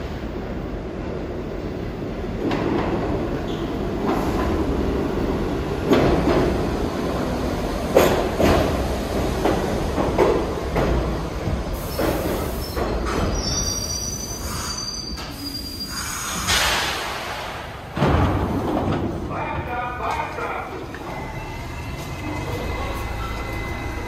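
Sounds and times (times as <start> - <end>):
subway train on rails: 0.0 - 24.0
high wheel squeal: 11.8 - 16.5.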